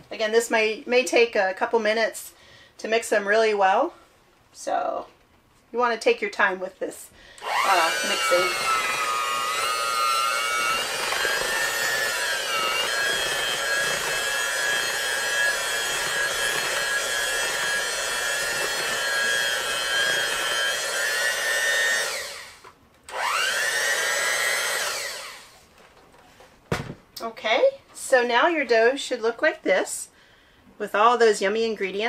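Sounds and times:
electric hand mixer whine: 7.4s - 25.6s.

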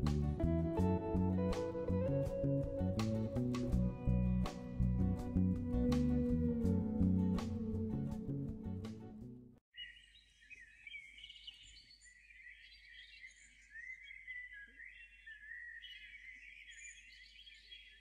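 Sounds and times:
birds chirping and singing: 9.7s - 18.0s.

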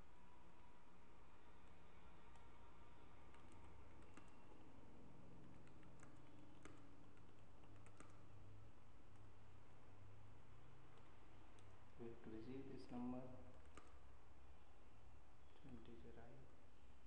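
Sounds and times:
keyboard typing clicks: 3.3s - 4.5s, 5.4s - 8.4s.

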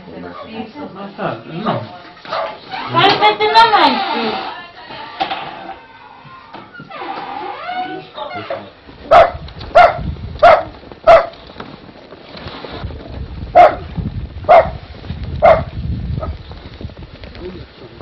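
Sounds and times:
dog barking: 2.3s - 2.6s, 9.1s - 11.4s, 13.6s - 13.8s, 14.5s - 14.8s, 15.4s - 16.3s.

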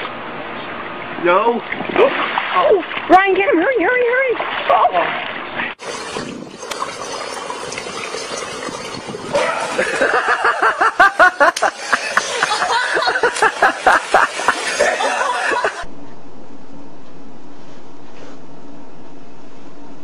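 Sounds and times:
person laughing hard: 9.4s - 15.8s.

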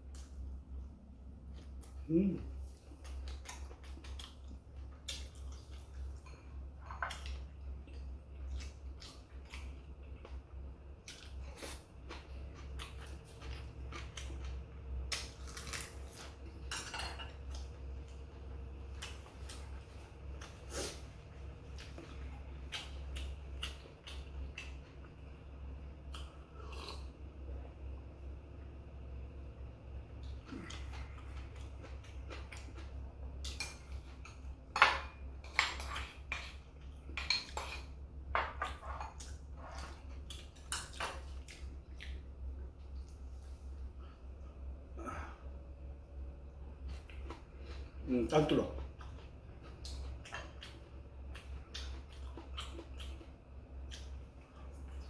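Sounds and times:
chewing: 1.5s - 27.2s, 30.1s - 34.5s, 35.4s - 43.9s, 46.6s - 48.0s, 48.6s - 55.0s.

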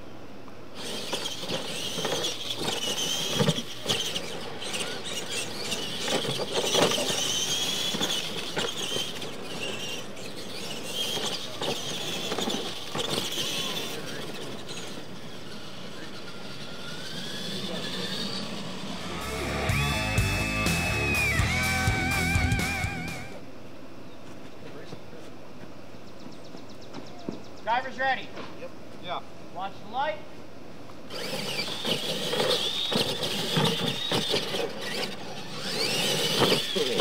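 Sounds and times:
electric motor whine: 0.8s - 23.4s, 31.1s - 37.0s.

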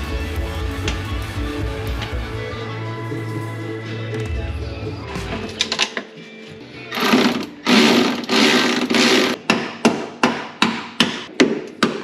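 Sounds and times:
power tool running: 6.9s - 9.4s.

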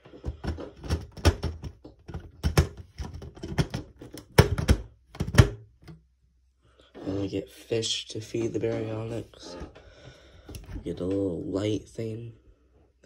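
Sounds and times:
plastic pieces clicking and knocking: 0.2s - 5.6s.

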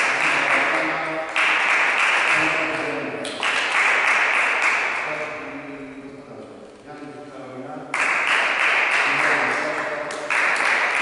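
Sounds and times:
small group clapping: 0.0s - 5.2s, 7.9s - 11.0s.

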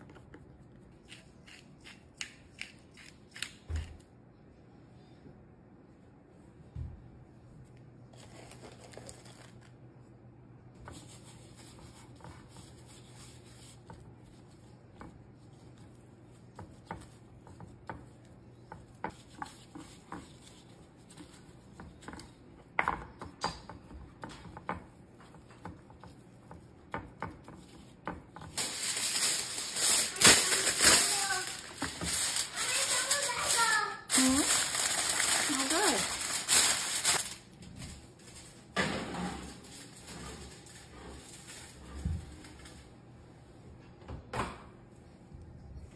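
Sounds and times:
aluminium foil crinkling: 8.1s - 9.8s, 28.5s - 38.7s, 39.5s - 42.8s.

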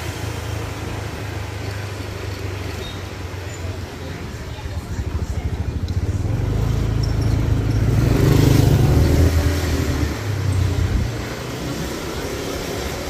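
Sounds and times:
motor scooter engine running: 0.4s - 11.1s.

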